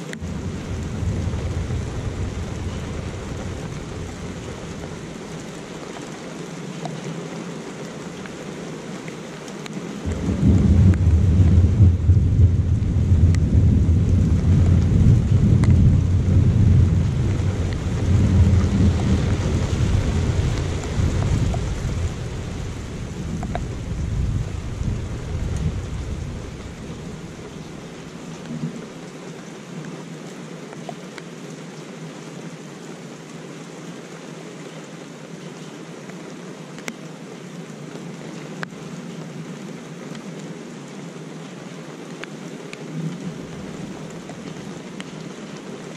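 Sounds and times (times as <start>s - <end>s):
steady rain: 0.0s - 45.9s
thunder rumbling: 0.1s - 5.8s, 10.0s - 28.8s.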